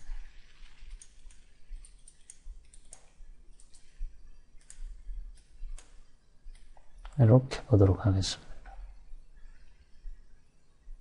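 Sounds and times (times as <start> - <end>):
computer mouse clicking: 0.0 - 7.2.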